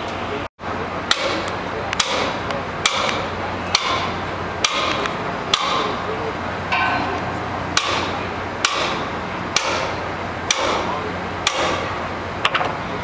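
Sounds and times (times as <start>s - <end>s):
steady low hum: 0.0s - 13.0s
hammer striking steel: 1.0s - 6.1s, 6.7s - 12.0s.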